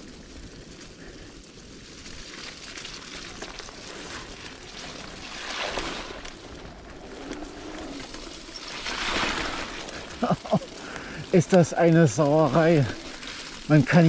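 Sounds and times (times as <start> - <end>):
tyres slithering through mud: 0.0 - 14.0
bike rattling clicks: 6.2 - 14.0.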